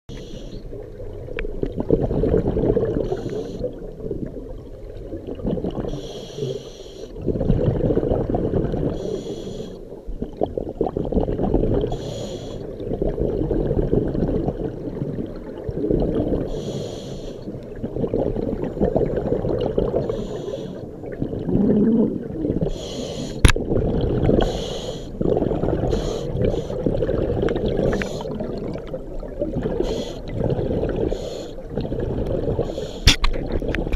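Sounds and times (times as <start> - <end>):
scuba regulator inhalations: 0.1 - 0.7, 3.0 - 3.8, 5.8 - 7.2, 8.9 - 9.9, 11.9 - 12.8, 16.5 - 17.6, 20.0 - 21.0, 21.6 - 23.5, 24.4 - 27.0, 27.7 - 28.6, 29.7 - 31.7, 32.5 - 33.3
bubbling exhaled air: 0.2 - 33.9.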